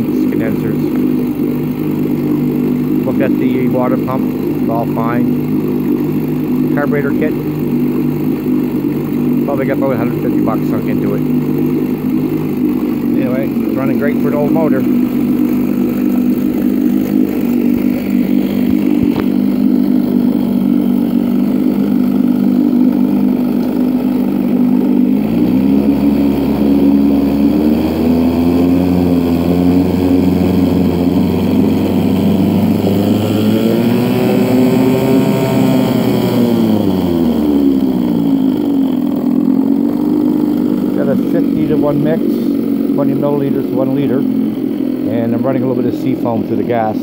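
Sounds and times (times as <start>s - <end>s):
outboard motor idling and revving: 0.0s - 47.0s.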